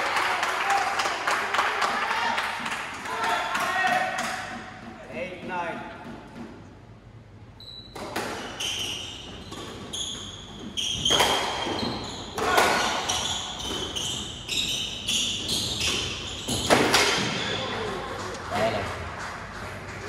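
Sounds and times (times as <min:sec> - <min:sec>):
shoes squeaking on wooden floor: 0:07.6 - 0:17.6.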